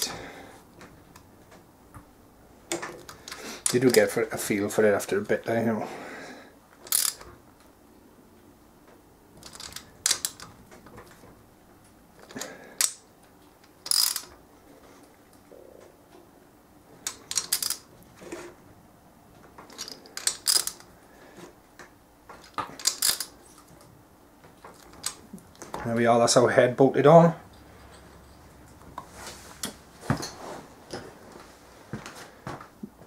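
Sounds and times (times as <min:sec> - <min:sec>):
ratchet wrench clicking: 0:06.9 - 0:07.2, 0:13.8 - 0:14.3, 0:19.8 - 0:20.8, 0:22.8 - 0:23.4.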